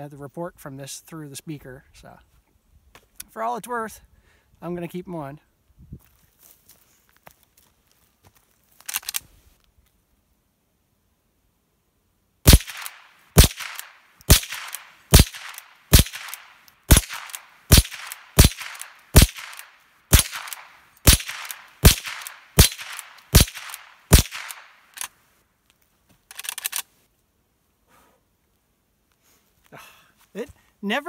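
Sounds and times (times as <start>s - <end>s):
rifle shots: 12.4s - 25.1s.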